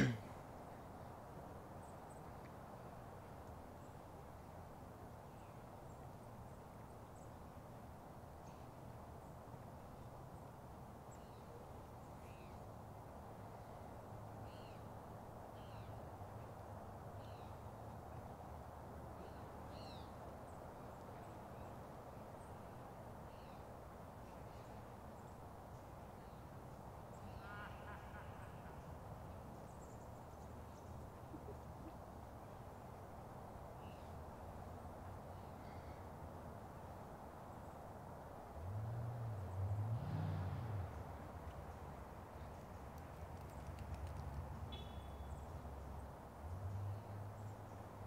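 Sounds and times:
loud long bird call: 27.2s - 29.0s
small birds chirping: 40.9s - 46.1s.

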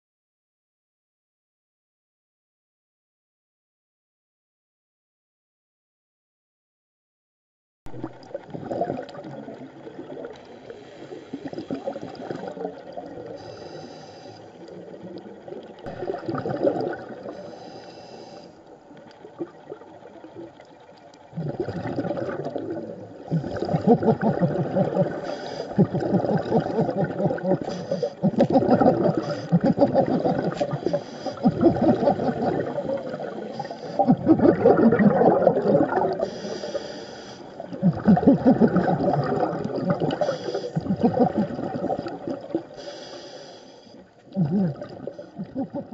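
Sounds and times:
gurgling exhaled bubbles: 7.9s - 43.0s, 44.3s - 45.9s
regulator hissing inhalations: 13.3s - 14.6s, 17.3s - 18.7s, 25.0s - 25.8s, 26.9s - 28.3s, 30.5s - 34.1s, 36.2s - 37.7s, 40.1s - 40.9s, 42.7s - 44.1s.

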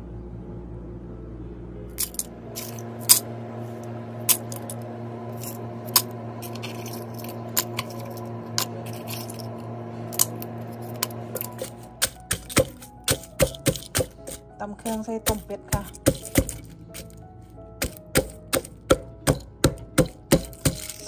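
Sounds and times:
steady low hum: 0.0s - 21.0s
ingredients dropping into stone mortar: 2.0s - 3.2s, 11.4s - 17.2s, 17.8s - 21.0s
wooden pestle pounding in mortar: 11.4s - 17.2s, 17.8s - 21.0s.

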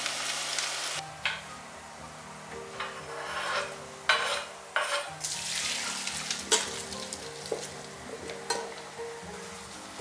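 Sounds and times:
peppers sizzling in frying pan: 0.0s - 1.5s, 4.1s - 10.0s.

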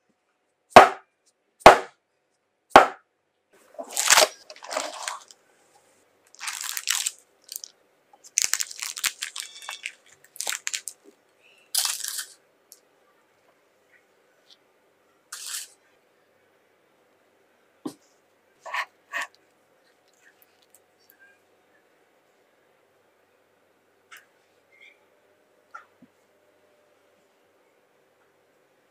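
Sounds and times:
parchment paper crinkling: 3.6s - 5.4s, 6.3s - 11.2s, 11.8s - 12.4s.

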